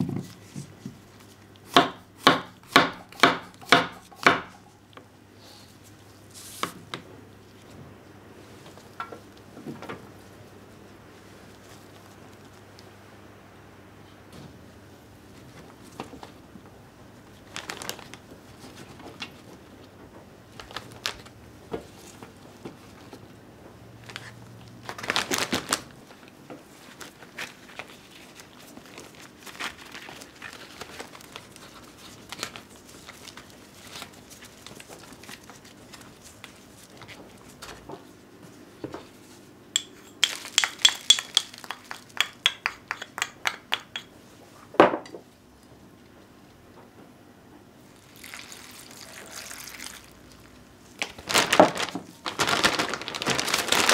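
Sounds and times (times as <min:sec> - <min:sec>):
plastic bag crinkling: 0:17.4 - 0:18.3, 0:24.1 - 0:37.2, 0:48.0 - 0:53.9.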